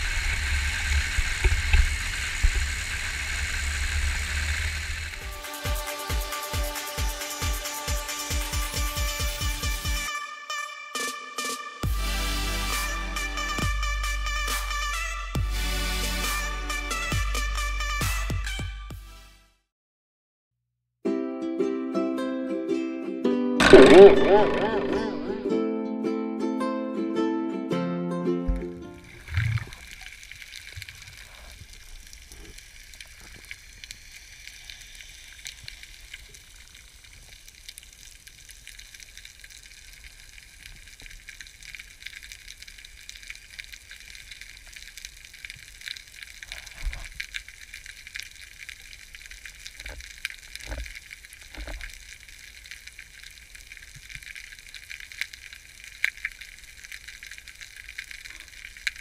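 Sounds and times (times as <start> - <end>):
underwater crackle of tiny clicks: 0.9 - 2.8, 28.5 - 59.0
dull low thumps: 28.5 - 29.8.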